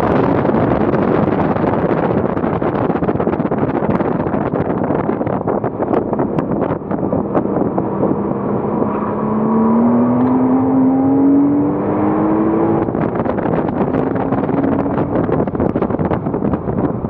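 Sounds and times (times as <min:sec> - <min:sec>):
wind buffeting microphone: 0:00.0 - 0:17.0
car engine accelerating: 0:04.4 - 0:17.0.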